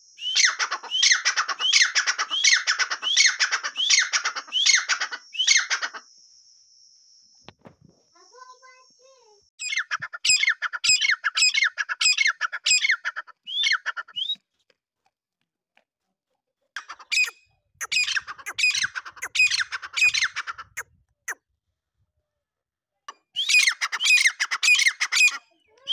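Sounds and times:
grey francolin calling: 0.2 - 6.0, 9.6 - 14.4, 16.8 - 20.8.

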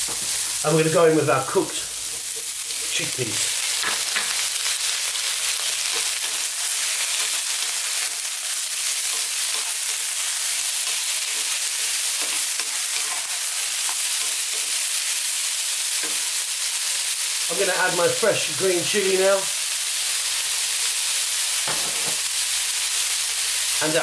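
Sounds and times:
vegetables sizzling in hot oil: 0.0 - 24.0
spatula scraping and tapping pan: 3.8 - 4.4.

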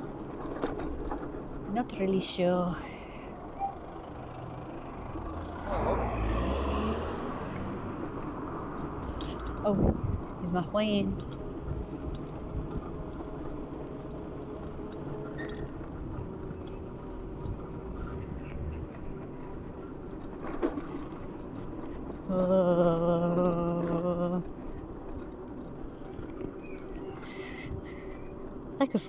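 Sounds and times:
person humming or yawning: 22.3 - 24.5.

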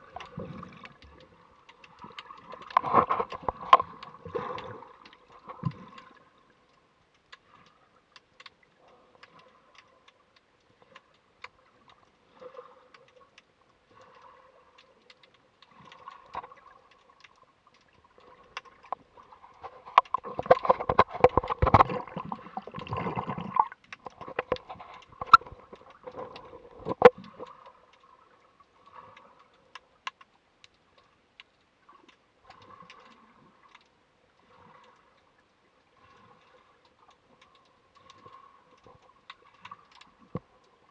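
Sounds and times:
underwater clicks and crackles: 0.0 - 40.9
rushing water: 15.9 - 29.0.

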